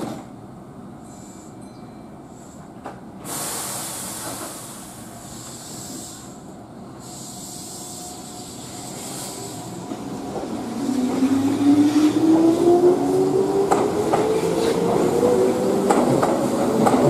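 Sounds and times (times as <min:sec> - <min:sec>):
train hiss: 0:01.0 - 0:01.6, 0:02.2 - 0:10.2.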